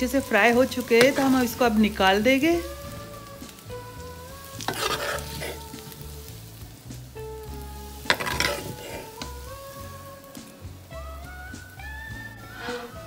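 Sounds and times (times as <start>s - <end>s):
potatoes sizzling in oil: 0.0s - 13.0s
soft background music: 0.0s - 13.0s
spoon scraping a pan: 0.3s - 2.7s, 4.5s - 6.0s, 7.9s - 9.4s, 12.4s - 13.0s.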